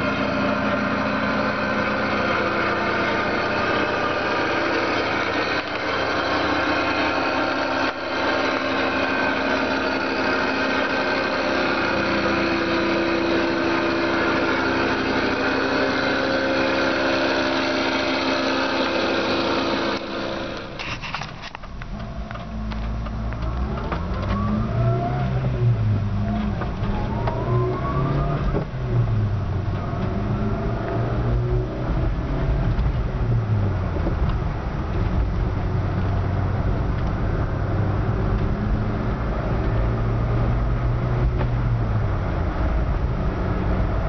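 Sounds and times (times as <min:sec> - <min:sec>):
van engine idling: 0:00.0 - 0:27.4, 0:28.4 - 0:30.4.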